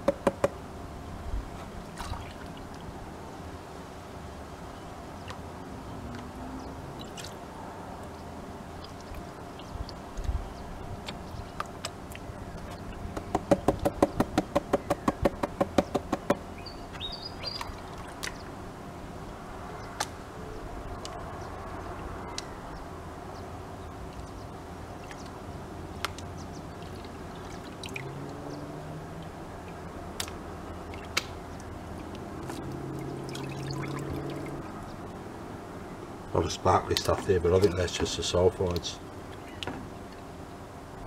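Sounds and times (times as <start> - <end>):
pan slapping water: 26.0 - 28.6, 29.2 - 34.8
water washing: 26.7 - 35.1.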